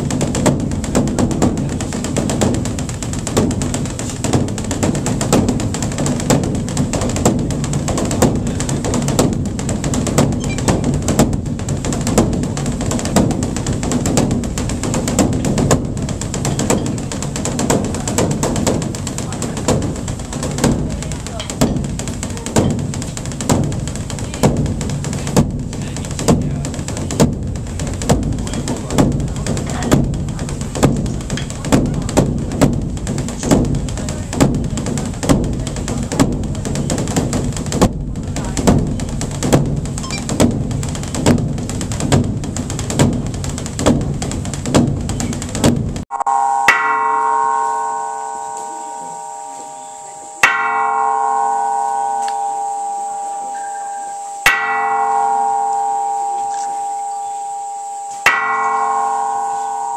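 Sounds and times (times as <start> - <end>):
large drum rolling rhythm: 0.0 - 59.9
metal gong ringing: 46.1 - 59.9.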